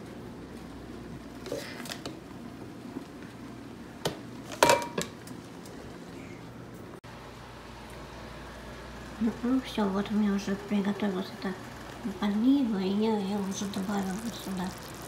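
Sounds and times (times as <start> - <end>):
frying pan and bowl clinking: 4.5 - 5.2.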